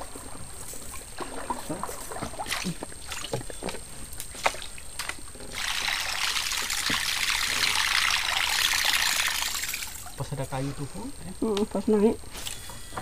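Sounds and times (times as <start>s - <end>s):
lure churning water: 0.0s - 10.2s.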